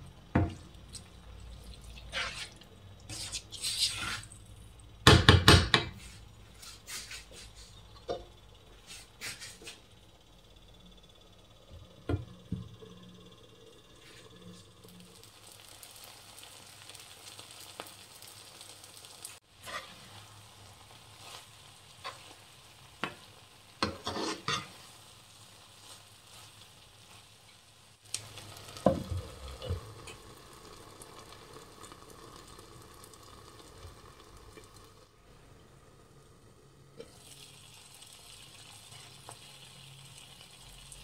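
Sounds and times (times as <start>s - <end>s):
noodles sizzling in a pan: 0.0s - 41.0s
utensil scraping a pan: 2.1s - 4.4s, 19.6s - 20.2s, 23.8s - 24.9s.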